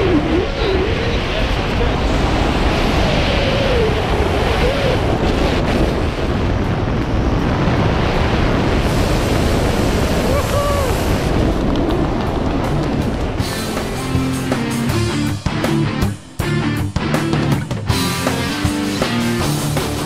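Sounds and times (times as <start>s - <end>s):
wind rushing over microphone: 0.0s - 20.0s.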